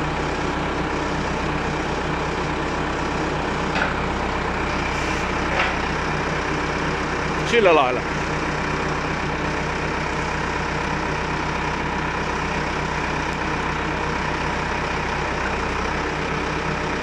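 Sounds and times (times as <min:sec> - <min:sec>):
tractor diesel engine running: 0:00.0 - 0:17.0
hydraulics tilting: 0:03.4 - 0:06.2.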